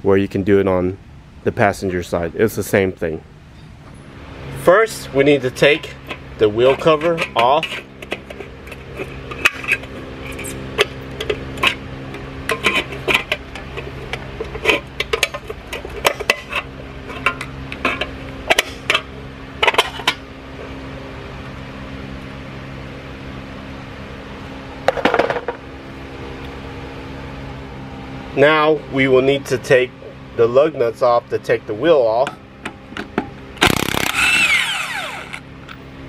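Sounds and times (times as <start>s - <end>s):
steady hum: 32.4s - 36.0s.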